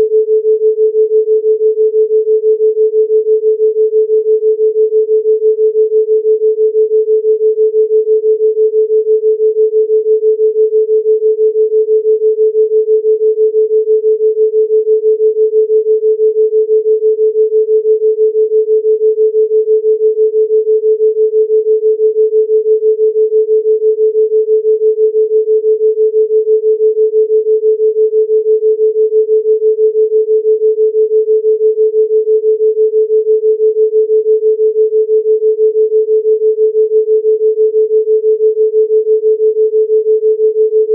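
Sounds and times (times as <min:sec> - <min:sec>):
pulsing sine tone: 0:00.0 - 0:40.9.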